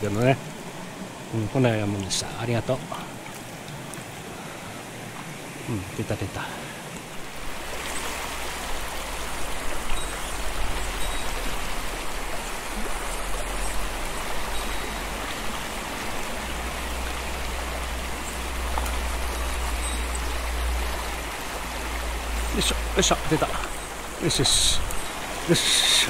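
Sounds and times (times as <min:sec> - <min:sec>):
stream rushing over rocks: 0:00.0 - 0:26.0.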